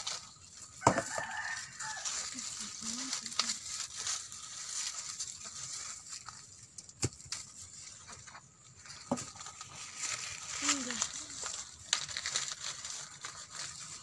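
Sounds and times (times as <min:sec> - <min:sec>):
dry corn husks rustling: 0:00.0 - 0:14.0
corn ears snapping off stalks: 0:06.8 - 0:07.6, 0:10.5 - 0:12.4.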